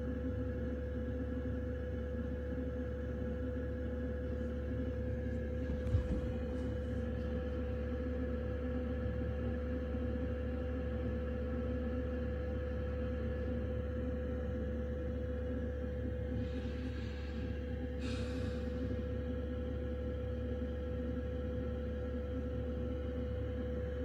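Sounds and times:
heater humming: 0:03.2 - 0:09.9, 0:14.4 - 0:21.6.

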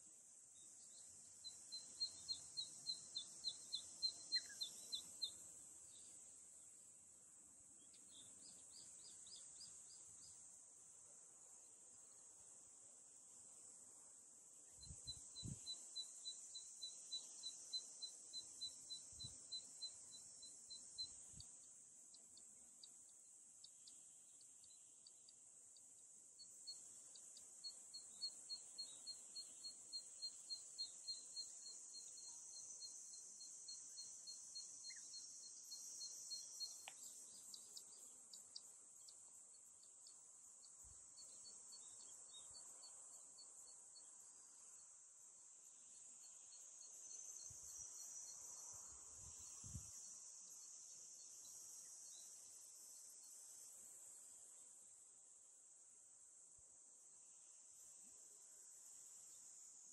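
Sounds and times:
cicada chorus: 0:00.0 - 0:06.9, 0:07.6 - 0:10.7, 0:14.6 - 0:59.9
pulsed insect call: 0:00.8 - 0:06.1, 0:26.4 - 0:39.2.

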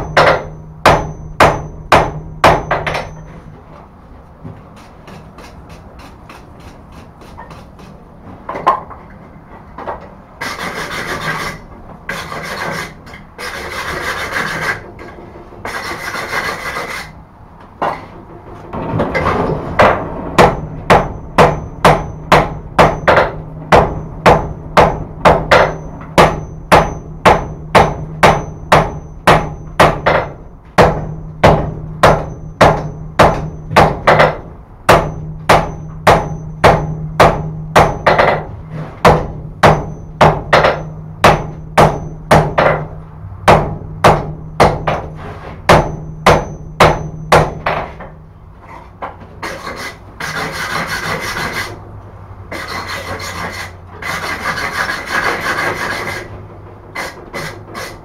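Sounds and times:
hammer blows ringing on anvil: 0:00.0 - 0:03.5, 0:19.8 - 0:48.2
scraping strokes on metal: 0:10.4 - 0:17.2, 0:48.6 - 0:51.8, 0:52.5 - 0:58.0
low steady hum: 0:16.8 - 0:49.4.

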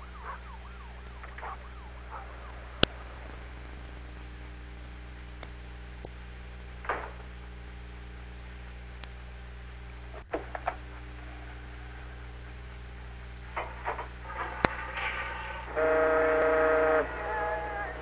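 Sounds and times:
low steady hum: 0:00.0 - 0:18.0
horn blast: 0:14.8 - 0:18.0.

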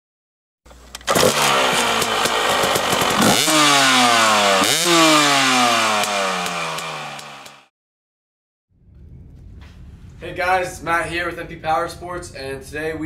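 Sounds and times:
motorcycle engine revving: 0:01.0 - 0:07.7.

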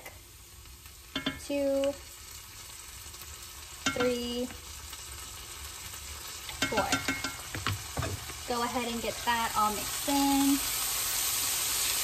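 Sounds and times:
onions sizzling in a skillet: 0:00.0 - 0:12.0
garlic spooned and stirred: 0:01.0 - 0:02.1, 0:03.2 - 0:05.0, 0:05.7 - 0:10.9.

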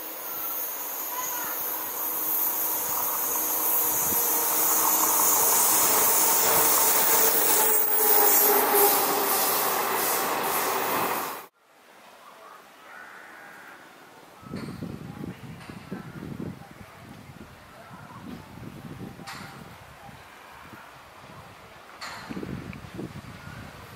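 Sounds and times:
high-pitched hiss: 0:00.0 - 0:11.5
train wheels rushing on rails: 0:00.0 - 0:11.5.

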